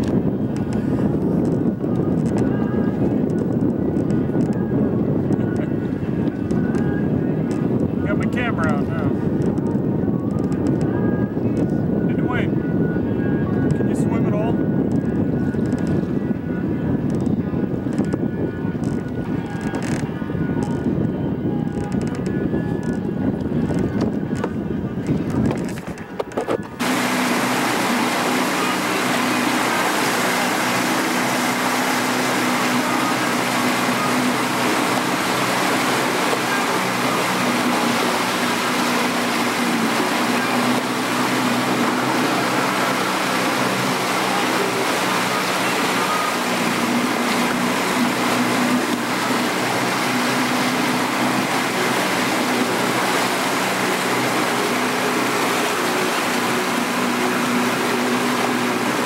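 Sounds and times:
rushing water: 0:00.0 - 0:11.6, 0:21.7 - 0:59.0
boat engine droning: 0:00.0 - 0:59.0.

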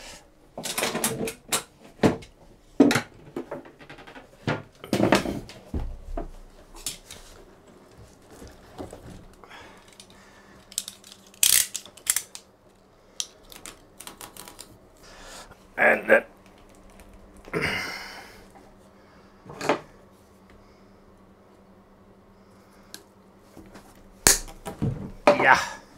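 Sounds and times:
knocks and clatter of handling: 0:00.6 - 0:10.1.

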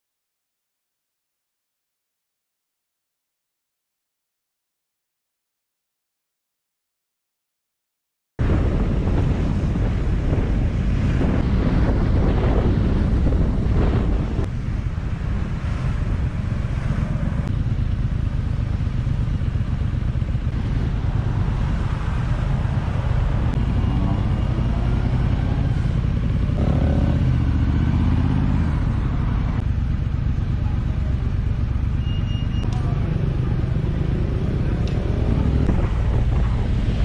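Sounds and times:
motorcycle engine rumble: 0:08.4 - 0:37.0.

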